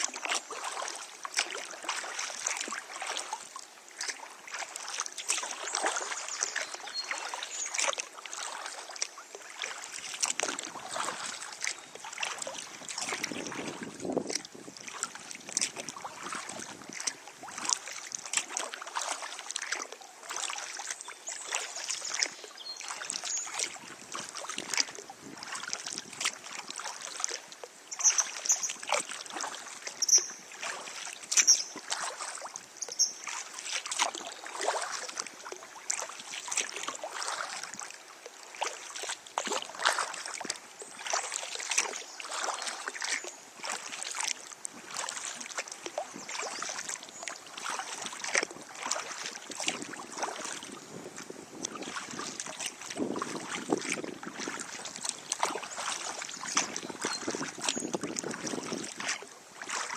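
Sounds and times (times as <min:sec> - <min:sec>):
kayak paddle splashes: 0:00.0 - 0:59.9
steady wash of water: 0:00.0 - 0:59.9
high bird chirps: 0:30.0 - 0:30.4, 0:31.4 - 0:31.8, 0:32.8 - 0:33.2.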